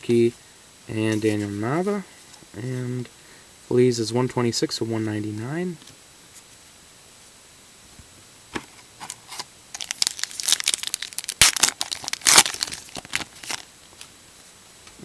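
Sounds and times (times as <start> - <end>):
plastic wrapper crinkling and tearing: 9.0 - 14.1.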